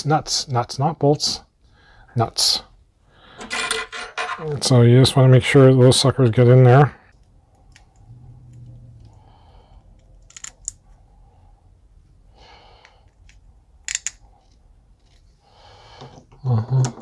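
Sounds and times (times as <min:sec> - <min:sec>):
small metal parts clicking: 0:10.0 - 0:10.8, 0:13.0 - 0:15.1.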